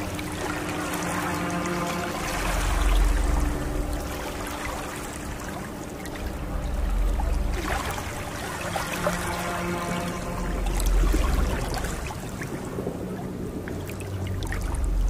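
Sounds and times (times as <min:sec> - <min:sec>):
faint low hum: 0:00.0 - 0:15.0
river water lapping: 0:00.0 - 0:15.0
wind gusting on microphone: 0:10.2 - 0:15.0.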